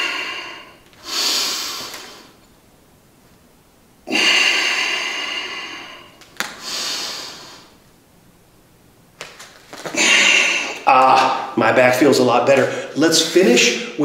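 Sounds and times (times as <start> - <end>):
man breathing heavily: 0.0 - 2.4, 4.0 - 7.8, 9.9 - 11.6, 12.7 - 13.0.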